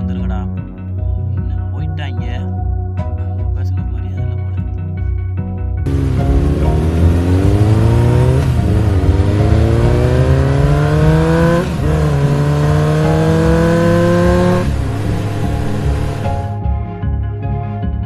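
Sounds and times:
vehicle engine accelerating: 5.9s - 16.6s.

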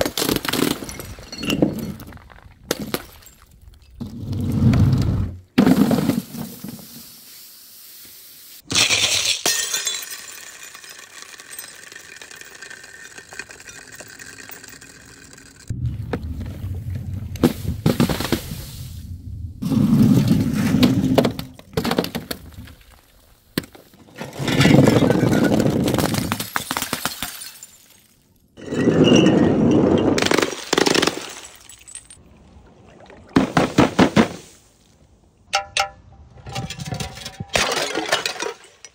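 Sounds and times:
marbles bouncing down concrete steps: 9.0s - 15.7s
objects dropped on hard ground: 20.1s - 22.8s.

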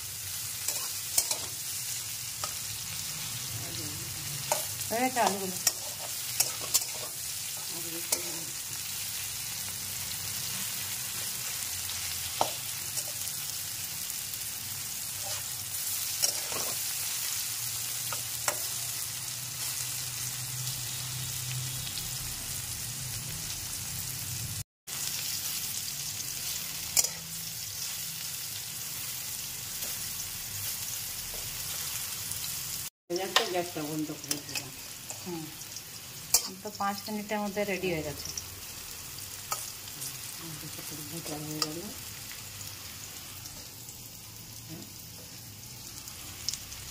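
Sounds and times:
potatoes sizzling in oil: 0.0s - 46.9s
metal spatula scraping pan: 4.4s - 8.5s, 15.1s - 16.9s.

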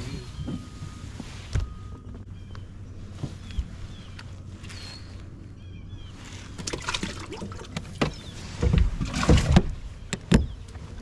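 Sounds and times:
knocks and clicks on boat deck: 0.4s - 0.7s, 7.7s - 10.8s.

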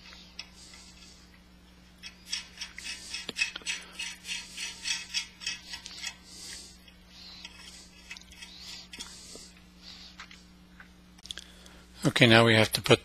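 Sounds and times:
nut scraping on thread: 2.0s - 9.5s.

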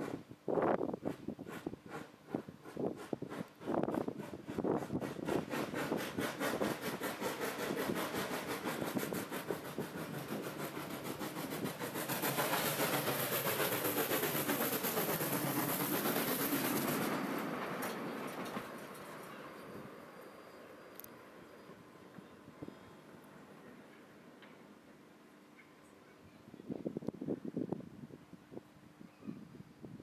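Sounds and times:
steam locomotive chuffing: 0.8s - 24.2s
steam hissing: 0.9s - 20.8s.

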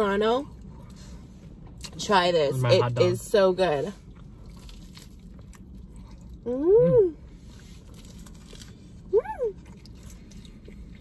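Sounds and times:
faint chewing: 4.0s - 6.5s
person humming mmm while eating: 6.5s - 7.2s.

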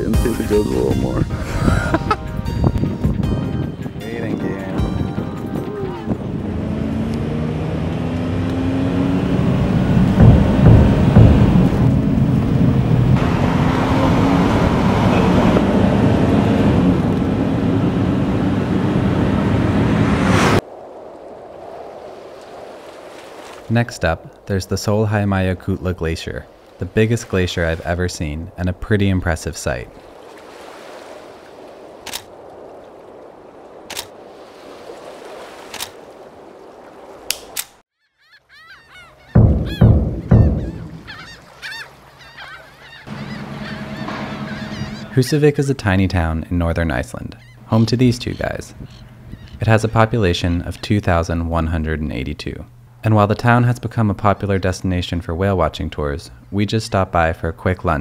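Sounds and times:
faint honking calls: 5.0s - 7.1s, 38.1s - 45.6s
car engine and road noise: 5.4s - 21.1s, 39.3s - 42.2s, 43.0s - 45.2s
steady rushing noise: 9.0s - 22.8s.

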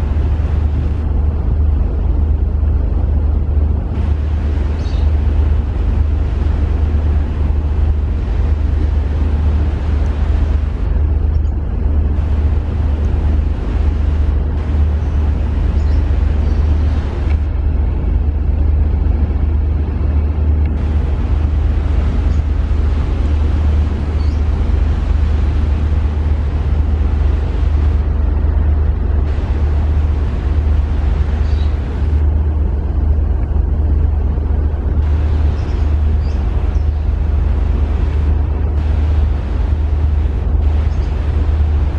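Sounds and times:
ship engines droning: 0.0s - 41.9s.

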